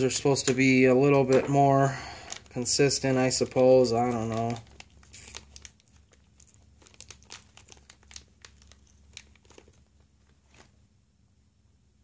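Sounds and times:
plastic bags crinkling: 0.0 - 10.8.

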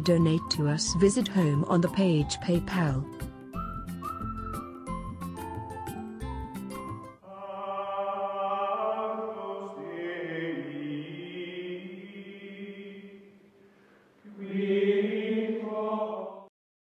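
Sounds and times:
choir-like chanting music: 7.2 - 13.4, 14.2 - 16.5.

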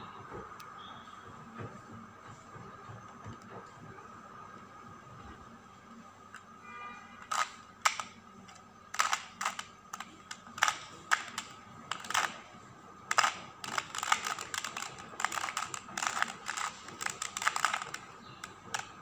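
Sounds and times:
plastic puzzle cube clicking: 7.2 - 12.4, 13.1 - 19.0.

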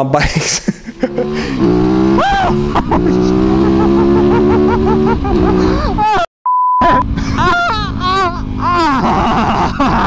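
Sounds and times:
motorcycle engine running: 1.0 - 6.0
censor bleep: 6.5 - 7.0.

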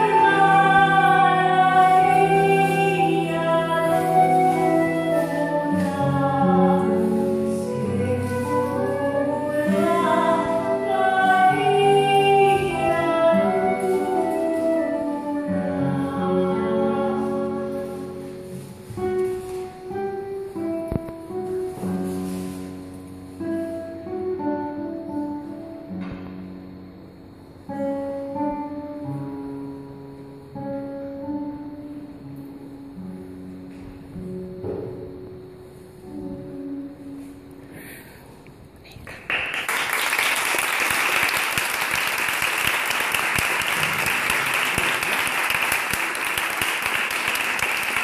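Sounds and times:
woman singing lullaby: 0.0 - 18.4
classical guitar: 0.0 - 39.0
flute: 2.3 - 18.0.

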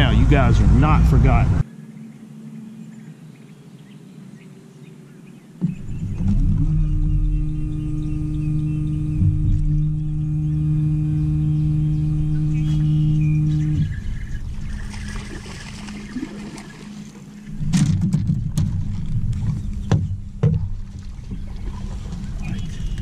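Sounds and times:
faint steady hum: 0.0 - 23.0
wind rumble on microphone: 5.6 - 16.8, 17.5 - 23.0
fish splashing in water: 14.6 - 23.0
sharp knocks on boat deck: 19.8 - 21.0.

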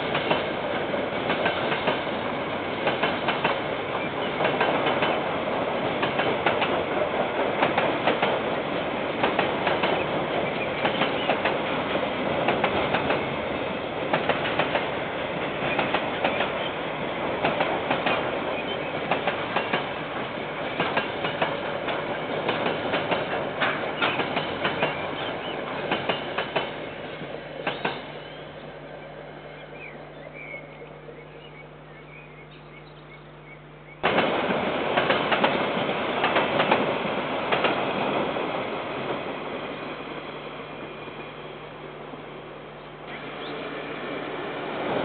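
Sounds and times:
freight train passing: 0.0 - 45.0
wheels clicking over rail joints: 2.8 - 5.3, 5.9 - 8.6, 9.2 - 16.6, 17.4 - 18.4, 19.0 - 26.8, 27.6 - 28.1.

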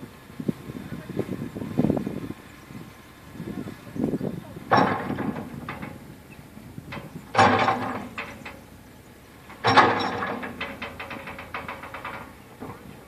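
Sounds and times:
machine engine running low: 0.0 - 13.0
post driver heavy ringing blows: 9.5 - 12.4.

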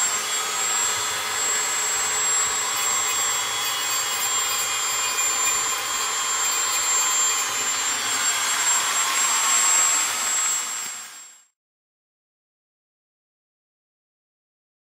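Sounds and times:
motorized tool whining: 0.0 - 11.5.

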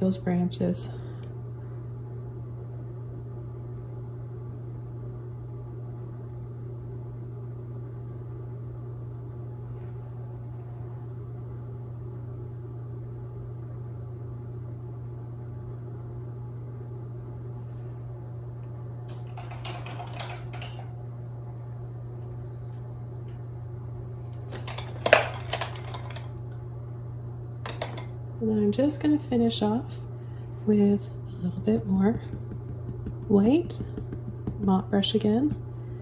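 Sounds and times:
motor humming with faint whine: 0.0 - 36.0.

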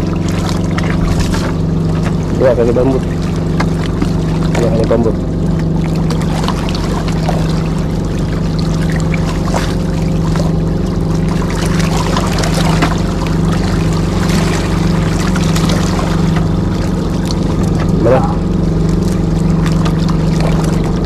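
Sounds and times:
engine droning: 0.0 - 21.0
water noise: 0.0 - 21.0.

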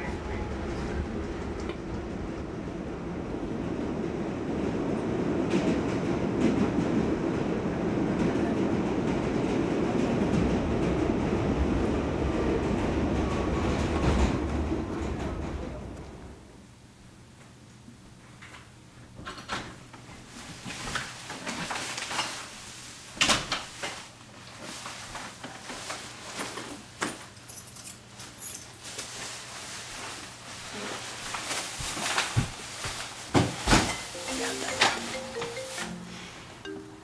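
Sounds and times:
plastic bags rustling: 20.5 - 27.4, 28.2 - 35.8.

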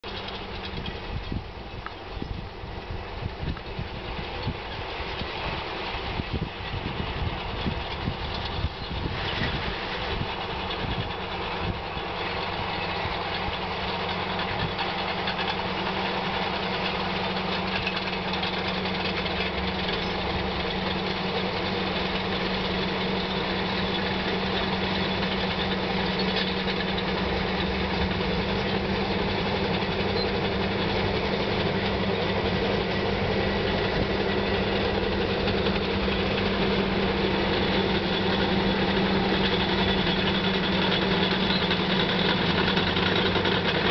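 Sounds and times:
bulldozer diesel engines: 0.0 - 43.9.

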